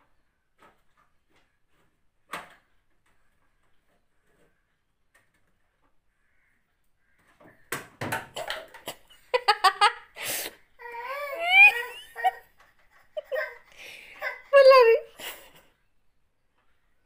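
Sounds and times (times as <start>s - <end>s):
sharp knocks and rattles: 7.4s - 9.2s
toddler crying: 10.8s - 12.5s, 13.1s - 15.2s.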